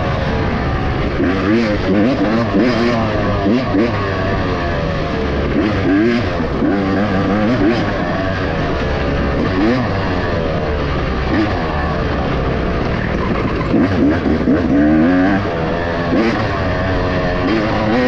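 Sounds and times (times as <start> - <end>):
racing engine revving: 0.0 - 18.0
steady rush of noise: 0.0 - 18.0.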